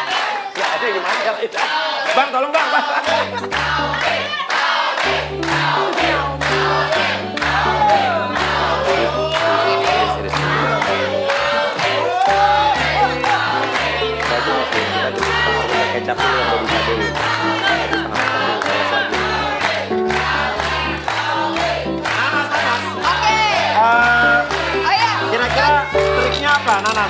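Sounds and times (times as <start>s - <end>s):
upbeat music with singing: 0.0s - 27.0s.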